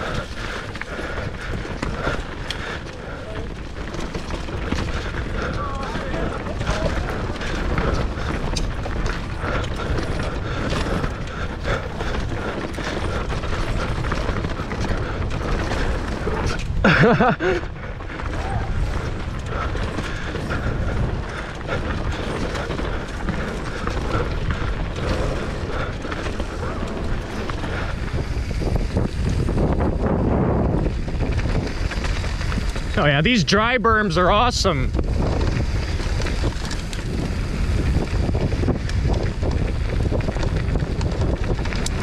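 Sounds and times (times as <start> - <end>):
tyre rumble: 0.0 - 33.4
mountain bike rattling: 0.0 - 42.0
wind on microphone: 4.5 - 33.6, 34.7 - 42.0.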